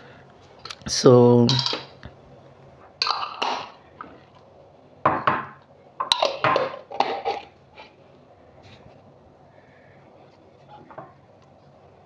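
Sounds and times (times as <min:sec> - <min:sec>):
glass jars clinking on stone: 0:01.5 - 0:01.9.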